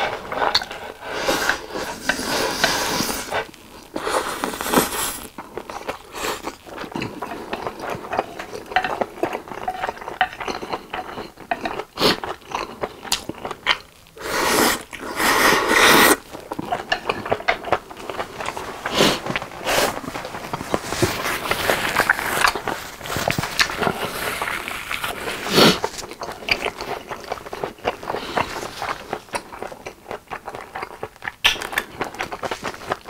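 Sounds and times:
slurping noodles: 0.0s - 5.3s, 14.2s - 16.3s, 17.7s - 29.4s
wet chewing with mouth clicks: 0.4s - 33.0s.

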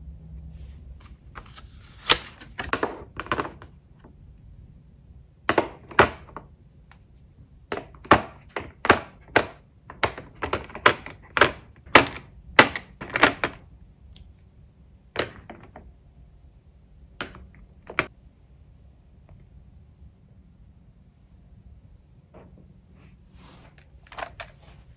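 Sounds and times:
markers clacking on plastic tray: 5.5s - 6.5s, 7.7s - 13.6s.

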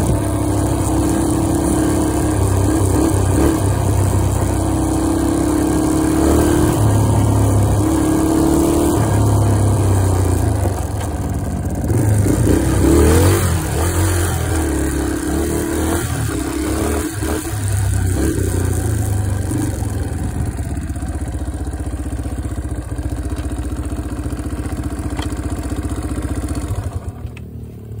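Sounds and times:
off-road vehicle engine revving: 0.0s - 22.1s.

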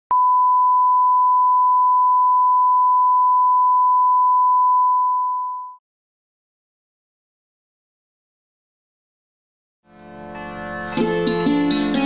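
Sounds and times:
steady reference test tone beep: 0.1s - 5.8s.

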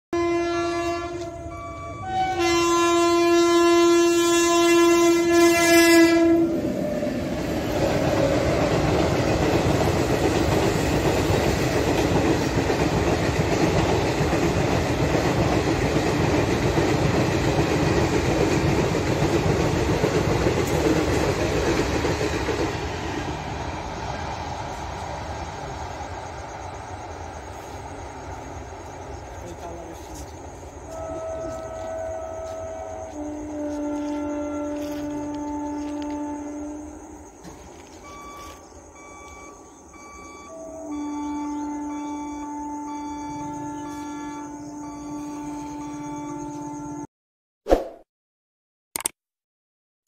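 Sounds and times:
train horn: 0.1s - 7.8s, 29.5s - 38.2s, 40.5s - 47.1s
train wheels rumbling on rails: 0.8s - 42.4s.

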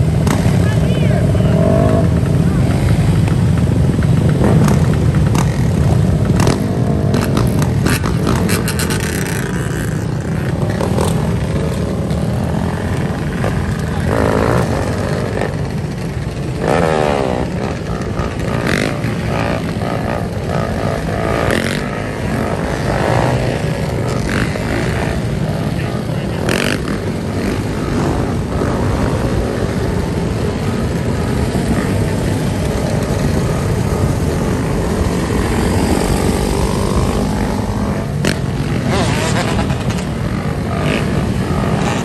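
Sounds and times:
dirt bikes and quads revving: 0.0s - 42.0s.

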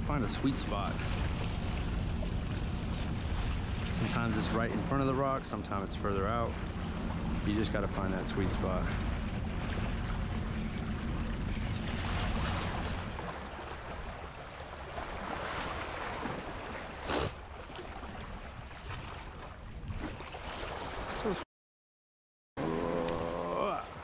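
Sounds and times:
wind buffeting microphone: 0.0s - 16.8s
waves against rocks: 0.0s - 21.4s, 22.6s - 24.0s.

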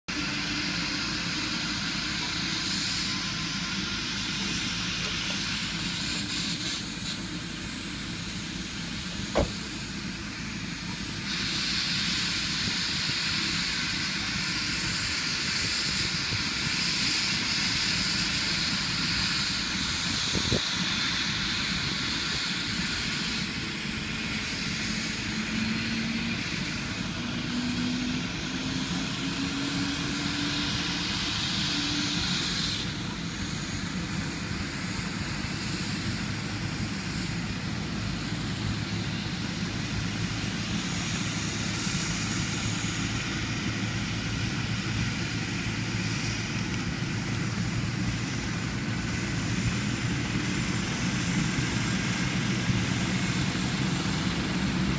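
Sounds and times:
helicopter turbine hiss: 0.1s - 54.9s
low rotor noise: 0.1s - 54.9s
sharp knocks: 9.4s - 9.7s.

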